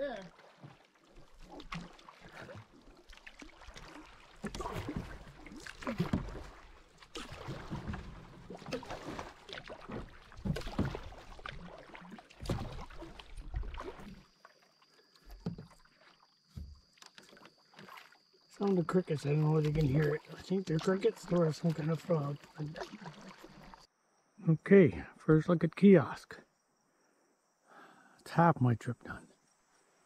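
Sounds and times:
canoe paddle splashing in water: 0.0 - 23.9.

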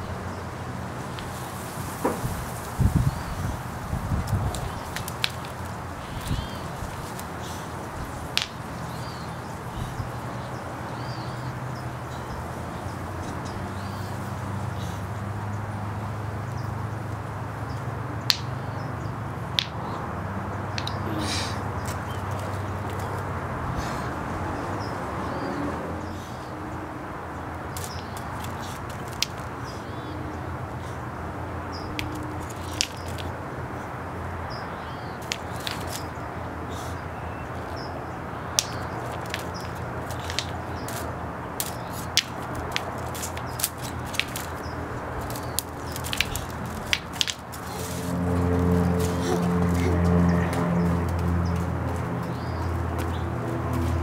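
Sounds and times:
outdoor background rumble: 0.0 - 54.0
stones clicking on concrete: 4.2 - 7.4, 8.1 - 9.3, 18.2 - 18.5, 19.5 - 19.9, 20.7 - 21.0, 21.8 - 23.2, 27.7 - 29.7, 31.9 - 33.4, 35.2 - 36.2, 38.4 - 54.0.

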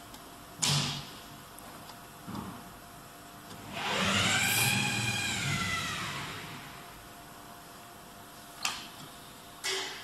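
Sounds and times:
motor whine: 3.6 - 6.9.

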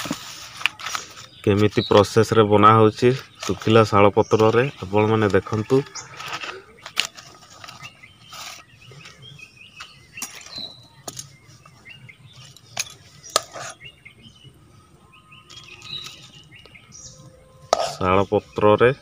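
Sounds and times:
dry leaves rustling: 0.0 - 2.0
birds chirping: 0.0 - 19.0.

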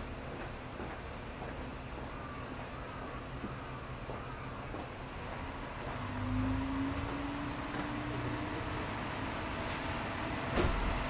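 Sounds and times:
diesel railcar engine running: 0.0 - 11.0.

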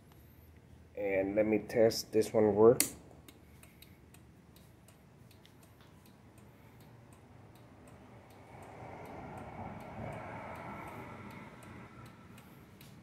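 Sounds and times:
soft steady noise: 0.0 - 13.0
turn-signal relay ticking: 2.8 - 13.0.

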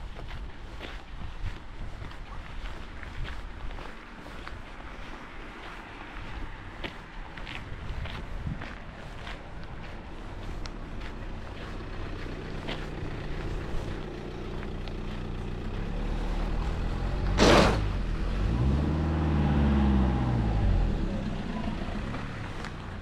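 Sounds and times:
vehicle engine running: 5.6 - 23.0.

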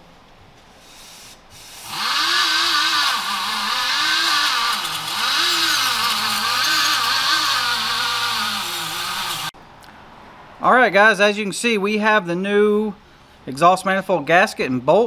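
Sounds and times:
power tool buffing wheel whine: 1.8 - 9.5.

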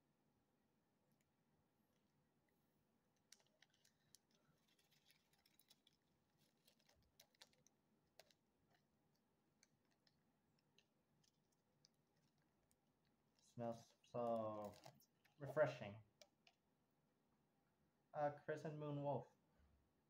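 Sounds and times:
plastic packet crinkling: 3.2 - 16.6.

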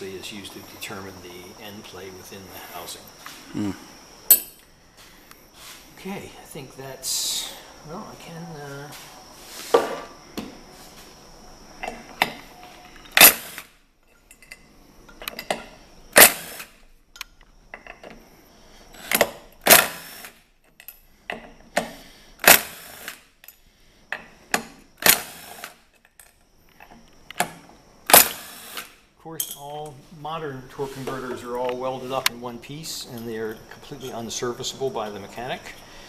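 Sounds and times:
cordless impact gun bursts: 16.1 - 16.8, 19.6 - 20.4, 22.4 - 23.2, 25.0 - 25.8, 28.1 - 29.0.

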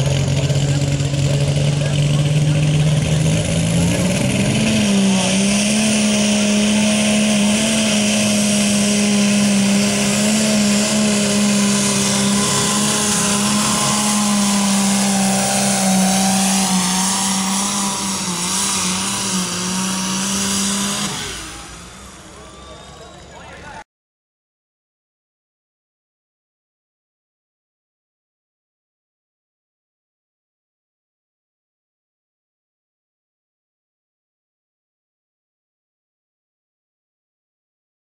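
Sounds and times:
tractor engine revving: 0.0 - 23.8.

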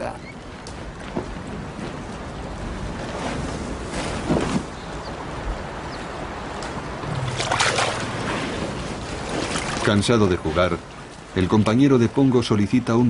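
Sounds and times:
low rough sound: 7.0 - 9.9
water sloshing and splashing: 7.0 - 11.1.

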